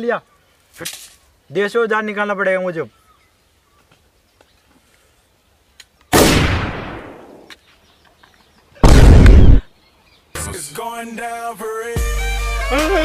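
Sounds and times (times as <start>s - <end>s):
sudden bang: 8.8s - 9.6s
very loud deep boom: 8.8s - 9.6s.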